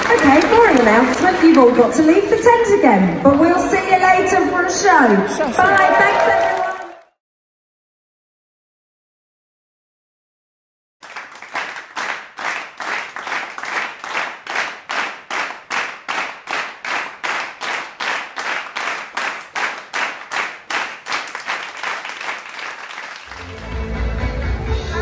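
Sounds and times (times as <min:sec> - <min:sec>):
audience clapping in unison: 0:00.0 - 0:04.0, 0:05.0 - 0:07.2, 0:11.0 - 0:24.2.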